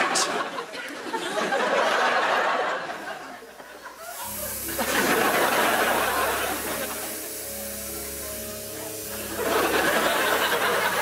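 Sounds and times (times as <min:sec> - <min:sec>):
audience laughing: 0:00.0 - 0:11.0
hiss: 0:03.0 - 0:11.0.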